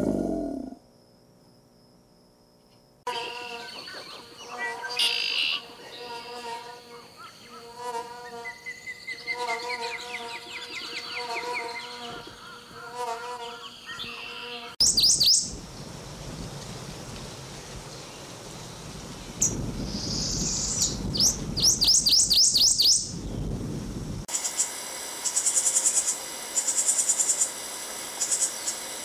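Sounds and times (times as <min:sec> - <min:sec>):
goldfinch high chirps: 0:13.9 - 0:15.6, 0:19.4 - 0:23.2
hummingbird wings humming: 0:24.3 - 0:29.0.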